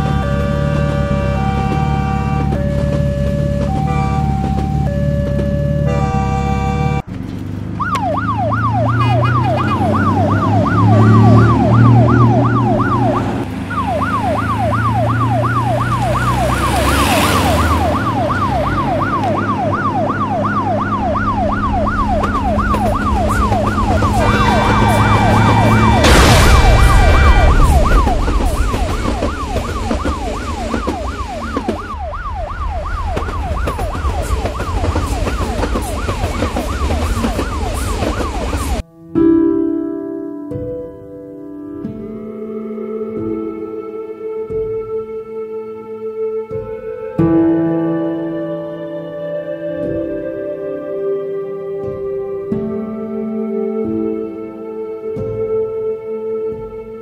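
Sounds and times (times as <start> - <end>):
police siren yelping: 0.0 - 7.0, 7.8 - 38.8
horn-like tone: 3.8 - 4.8, 5.8 - 7.0, 23.9 - 25.8
loud rushing: 10.2 - 38.8
low rumble: 19.9 - 36.0.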